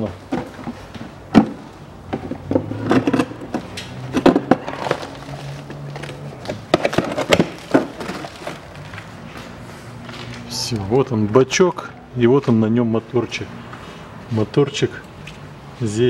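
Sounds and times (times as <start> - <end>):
plastic knocks and clatters: 0.0 - 9.0.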